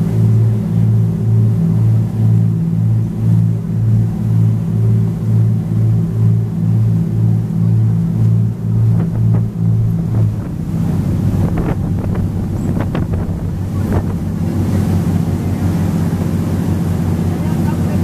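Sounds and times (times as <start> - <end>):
boat engine drone: 0.0 - 18.0
water rushing along hull: 0.0 - 18.0
wind buffeting microphone: 7.7 - 18.0.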